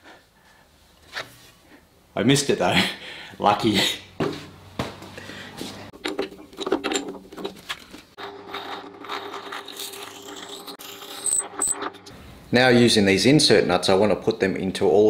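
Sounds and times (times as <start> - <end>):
drill bit scraping into wood: 8.3 - 12.1.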